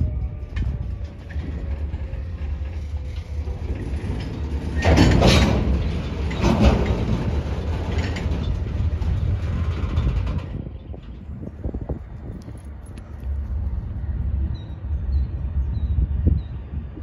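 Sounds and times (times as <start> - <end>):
freight train rolling: 0.0 - 17.0.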